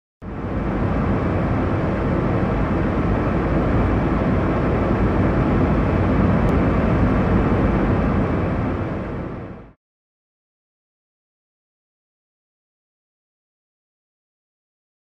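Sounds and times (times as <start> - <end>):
jet airliner engine noise: 0.2 - 9.8.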